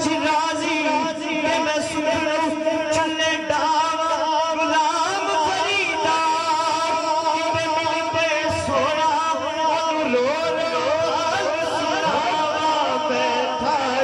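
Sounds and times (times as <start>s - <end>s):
man singing into a microphone: 0.0s - 14.0s
backing singers drone: 10.4s - 14.0s.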